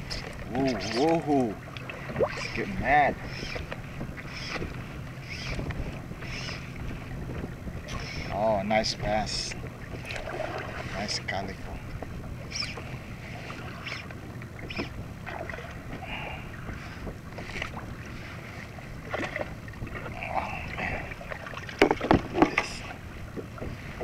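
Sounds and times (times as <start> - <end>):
water lapping against kayak hull: 0.0 - 24.0
wind: 0.0 - 24.0
sharp knocks and splashing: 9.8 - 11.0, 21.2 - 23.8.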